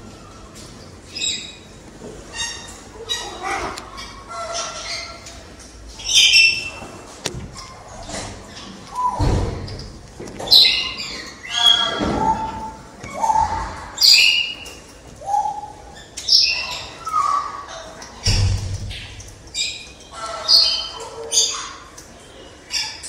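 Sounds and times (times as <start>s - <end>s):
low thud: 18.2s - 19.5s.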